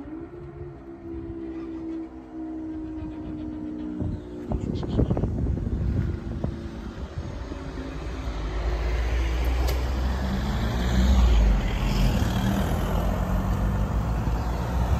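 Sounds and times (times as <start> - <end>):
vehicle engines rumbling: 0.0 - 14.9.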